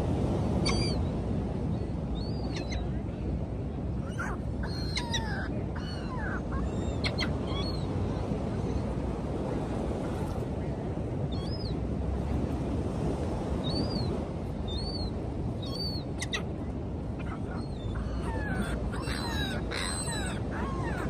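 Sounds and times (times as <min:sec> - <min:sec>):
wind and surf rushing: 0:00.0 - 0:21.0
seagulls calling: 0:00.6 - 0:01.0, 0:04.0 - 0:08.4, 0:17.2 - 0:21.0.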